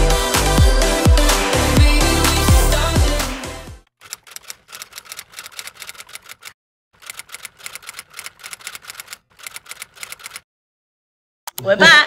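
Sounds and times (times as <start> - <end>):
typewriter key clicks: 4.1 - 10.4.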